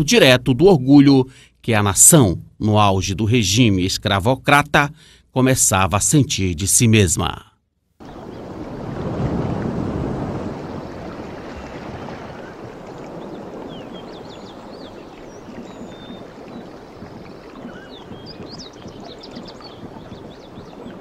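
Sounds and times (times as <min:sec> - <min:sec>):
water rushing: 0:08.0 - 0:21.0
wind: 0:08.0 - 0:21.0.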